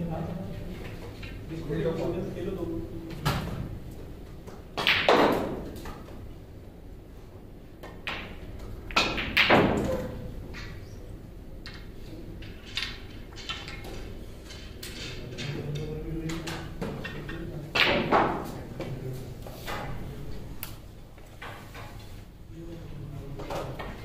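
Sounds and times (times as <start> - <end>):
snooker balls knocking: 4.6 - 6.2, 7.8 - 10.8, 16.3 - 18.9.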